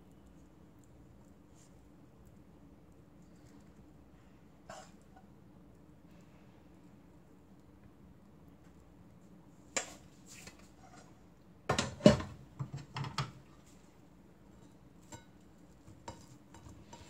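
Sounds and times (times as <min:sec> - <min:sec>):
dishes and utensils clattering: 0:11.7 - 0:13.4, 0:14.6 - 0:17.0.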